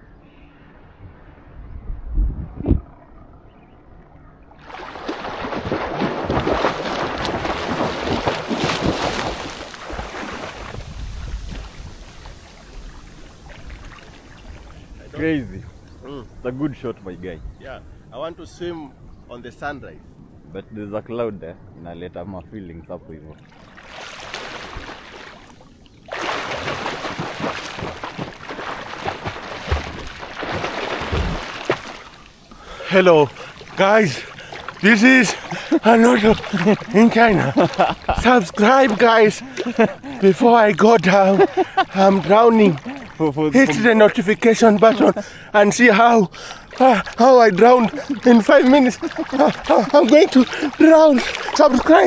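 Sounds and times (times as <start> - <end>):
seawater splashing from swimming: 4.5 - 16.4, 23.3 - 52.0.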